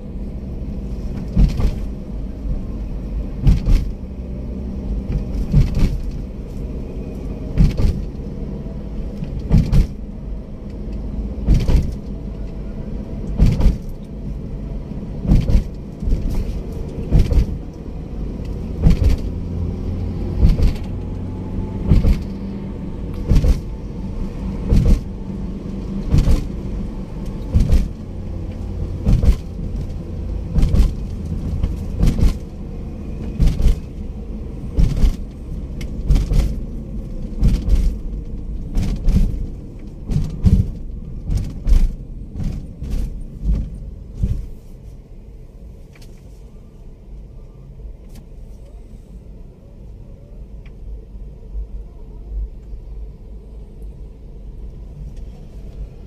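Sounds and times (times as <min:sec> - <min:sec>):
engine and tyre rumble: 0:00.0 - 0:56.0.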